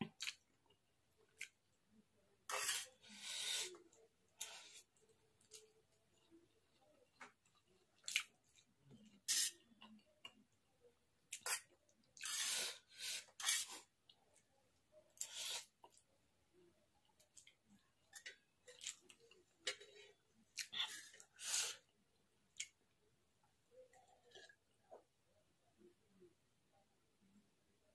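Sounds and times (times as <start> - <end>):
chewing: 4.4 - 10.4, 17.1 - 21.3.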